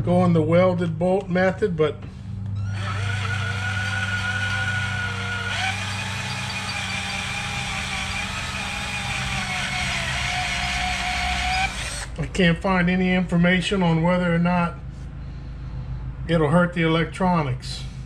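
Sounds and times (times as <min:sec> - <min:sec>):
electric drill whining: 0:02.6 - 0:12.2.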